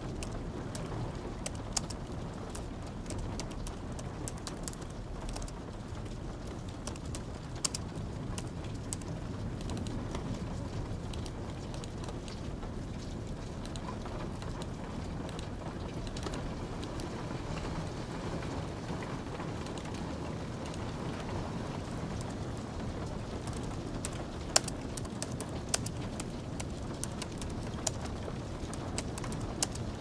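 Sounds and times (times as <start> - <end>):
light rain: 0.0 - 30.0
keyboard key clicks: 8.9 - 9.9.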